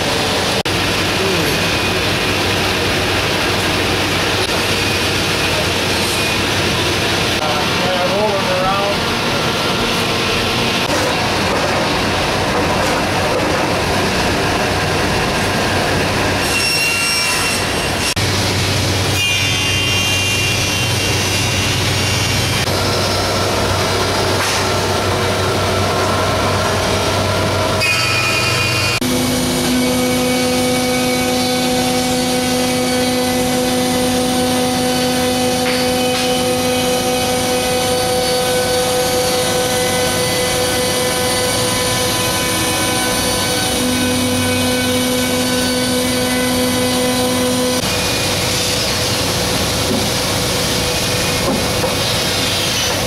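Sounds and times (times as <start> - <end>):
thickness planer running: 0.0 - 53.0
saw cutting wood: 19.1 - 53.0.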